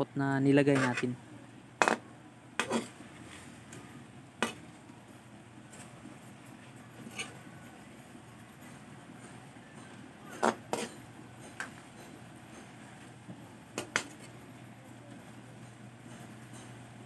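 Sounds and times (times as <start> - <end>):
low steady hum: 0.0 - 17.0
metal spatula scraping wok: 0.6 - 1.2, 2.6 - 3.6, 7.0 - 7.4, 10.4 - 12.2.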